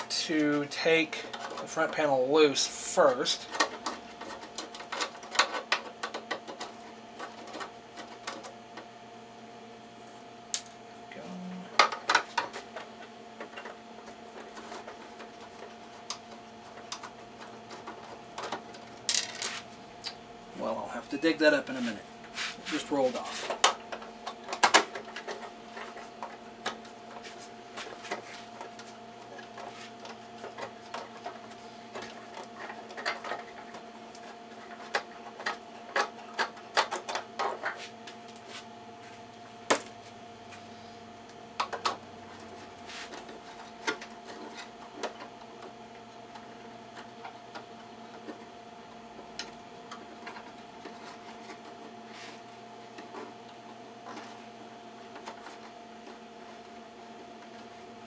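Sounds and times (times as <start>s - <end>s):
electrical hum: 0.0s - 58.0s.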